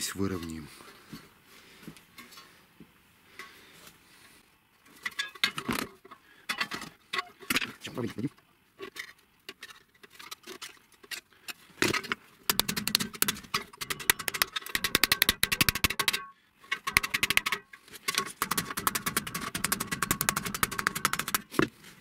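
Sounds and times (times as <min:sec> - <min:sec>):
wooden mallet tapping sheet metal: 0:12.5 - 0:17.6, 0:18.2 - 0:21.4.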